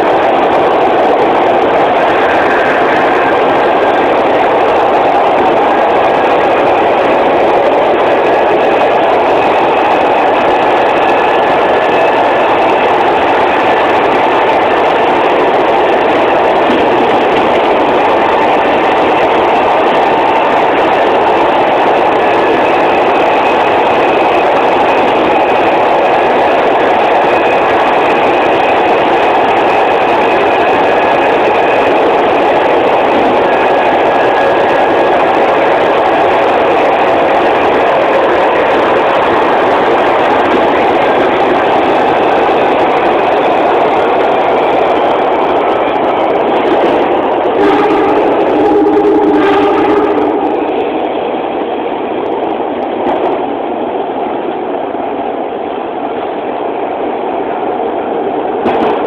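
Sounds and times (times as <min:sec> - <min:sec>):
wheels rushing on rail: 0:00.0 - 0:59.0.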